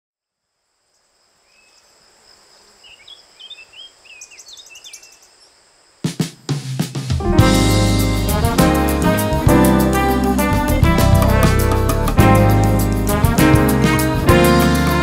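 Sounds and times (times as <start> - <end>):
small birds chirping: 0.9 - 5.7.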